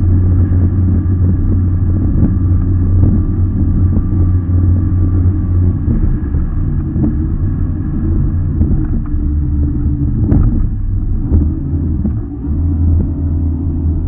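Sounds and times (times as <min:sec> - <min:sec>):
boat engine running: 0:00.0 - 0:14.0
hull knocking on waves: 0:00.3 - 0:04.8, 0:08.2 - 0:09.4, 0:10.0 - 0:12.2.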